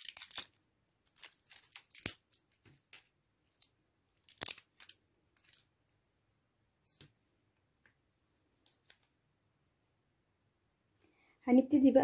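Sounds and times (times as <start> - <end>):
plastic tape crinkling: 0.0 - 5.7.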